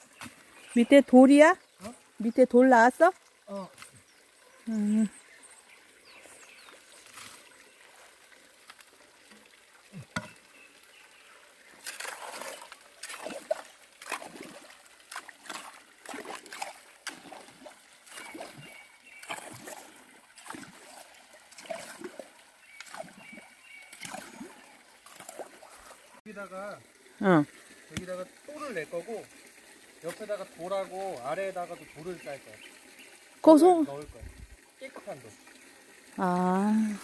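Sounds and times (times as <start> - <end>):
hands sloshing in muddy water: 11.7 - 26.2.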